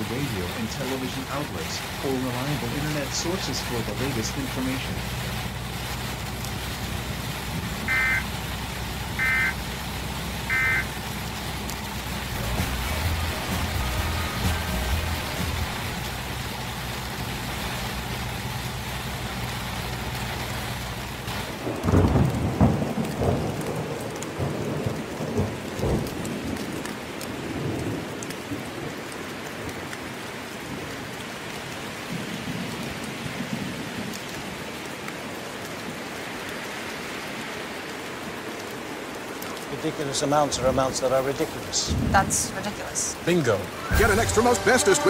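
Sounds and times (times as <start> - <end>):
steady rain: 0.0 - 45.0
thunderclap rumbling: 21.2 - 26.8, 41.8 - 43.0.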